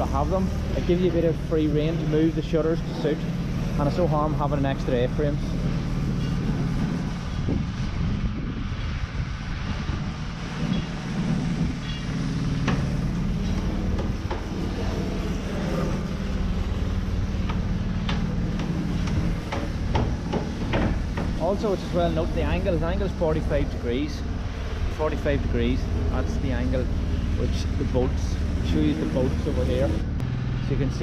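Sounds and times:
low construction rumble: 0.0 - 31.0
sharp knocks: 17.4 - 21.4.

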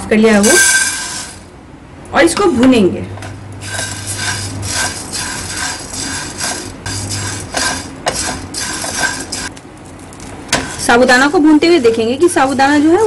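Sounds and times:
pearls rattling in a pan: 3.6 - 9.5
spatula stirring: 3.6 - 13.0.

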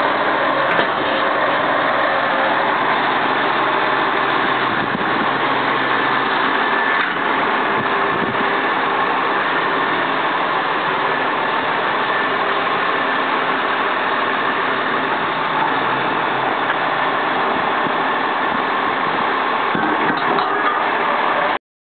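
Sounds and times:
diesel truck engine idling: 0.0 - 21.6.

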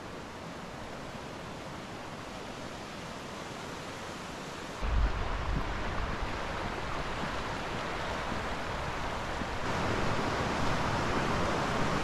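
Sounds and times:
river rushing: 0.0 - 12.0
wind buffeting microphone: 4.8 - 12.0.

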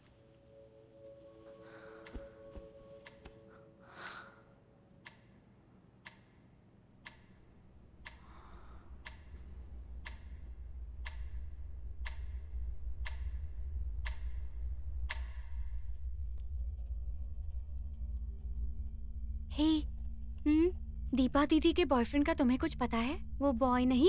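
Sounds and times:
clock ticking: 5.0 - 15.8
deep low drone: 8.4 - 24.0.

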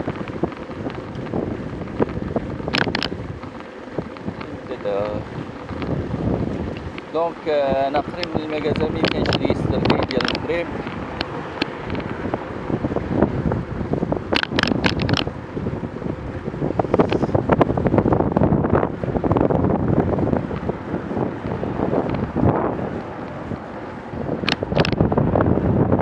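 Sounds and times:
wind buffeting microphone: 0.0 - 26.0
sharp clicks: 2.0 - 6.0, 8.1 - 12.2, 14.3 - 15.3, 24.4 - 25.0.

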